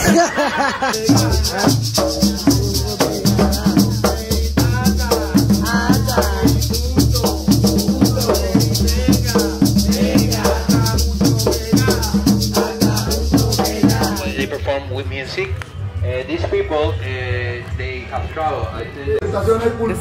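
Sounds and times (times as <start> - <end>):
maracas shaking: 0.0 - 14.5
person singing: 0.0 - 14.5
hand drums: 0.9 - 14.5.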